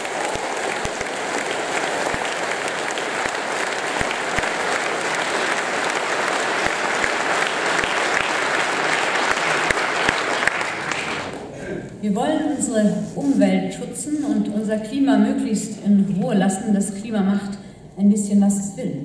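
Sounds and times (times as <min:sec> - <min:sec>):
audience applauding: 0:00.0 - 0:11.5.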